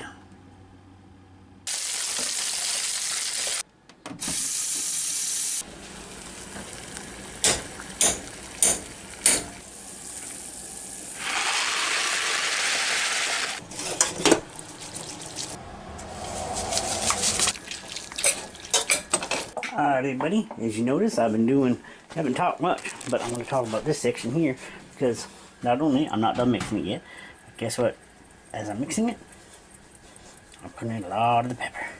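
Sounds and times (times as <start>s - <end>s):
water running: 5.6s - 15.6s, 16.2s - 19.6s
water pouring into colander: 16.2s - 18.9s.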